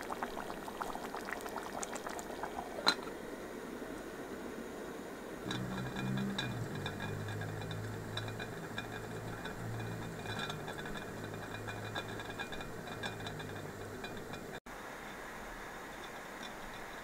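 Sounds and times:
low steady hum: 0:00.0 - 0:17.0
pot lid ticking and clinking: 0:05.4 - 0:14.6.

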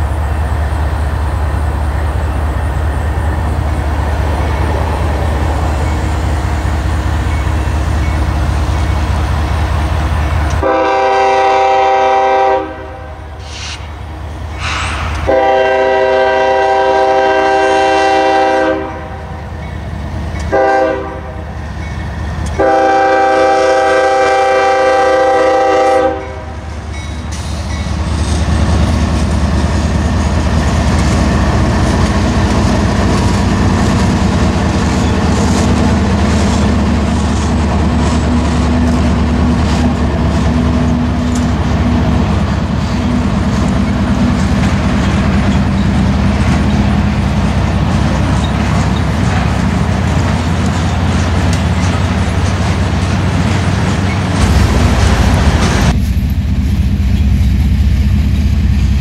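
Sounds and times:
diesel engines rumbling: 0:00.0 - 0:59.0
locomotive horn blasts: 0:10.6 - 0:13.4, 0:15.2 - 0:19.4, 0:20.4 - 0:21.5, 0:22.5 - 0:26.7
train wheels clicking over rails: 0:13.3 - 0:16.2, 0:26.3 - 0:59.0.

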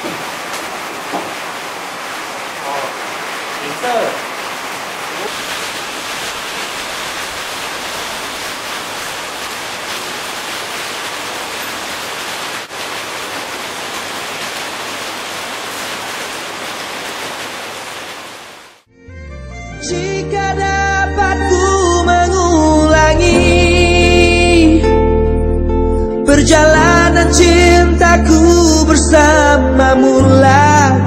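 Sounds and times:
steady broadband hiss: 0:00.0 - 0:18.9
music: 0:18.9 - 0:31.0.

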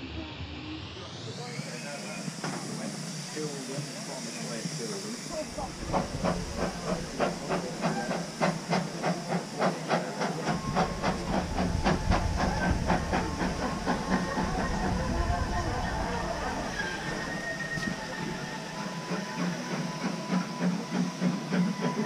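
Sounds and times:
steam hissing: 0:00.0 - 0:22.0
steam locomotive exhaust beats: 0:00.0 - 0:22.0.

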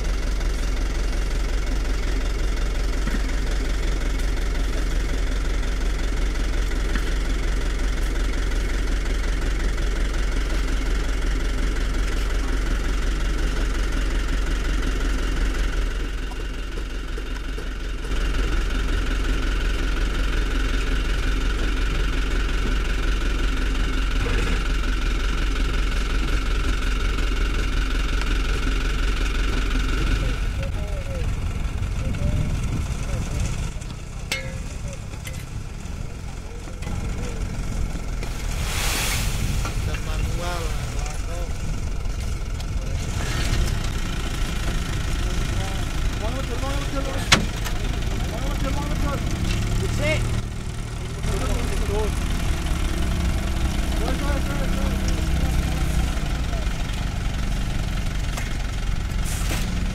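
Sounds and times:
heavy machinery diesel engines: 0:00.0 - 0:59.9
steady high tone: 0:34.3 - 0:35.4.

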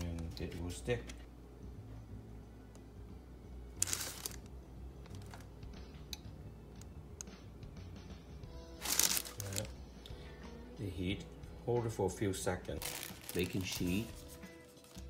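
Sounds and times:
faint background music: 0:00.0 - 0:15.0
baking paper rustling: 0:03.8 - 0:04.5, 0:08.8 - 0:09.7, 0:12.8 - 0:15.0.

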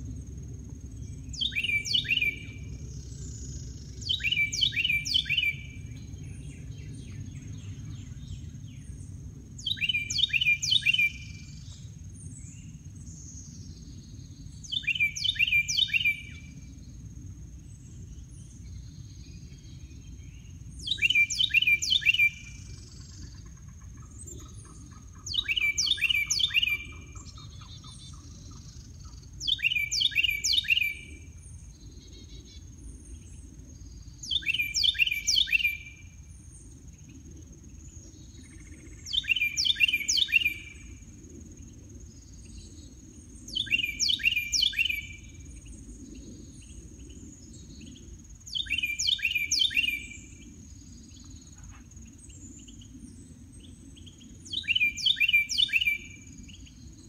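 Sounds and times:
songbird singing: 0:00.0 - 0:57.0.

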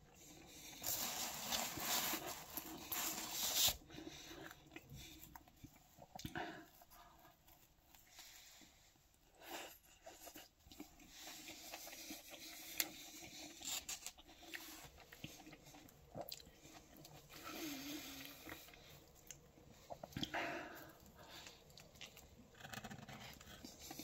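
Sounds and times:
person chewing: 0:09.8 - 0:24.0.

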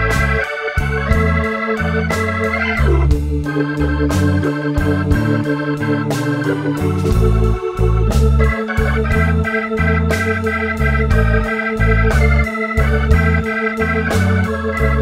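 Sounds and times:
bass line: 0:00.0 - 0:15.0
organ chords: 0:00.0 - 0:15.0
drum hits: 0:06.8 - 0:08.5.

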